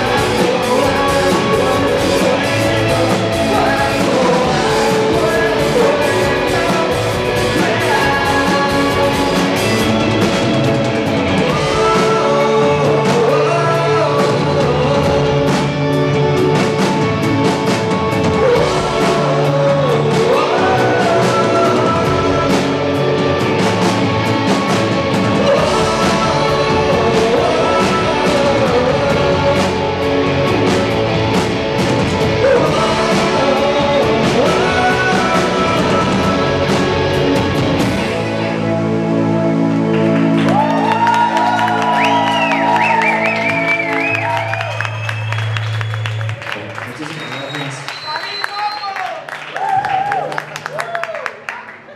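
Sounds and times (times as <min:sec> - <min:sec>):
man singing: 0:00.0 - 0:17.2, 0:18.0 - 0:31.4, 0:32.0 - 0:39.5
rock band playing: 0:00.0 - 0:51.5.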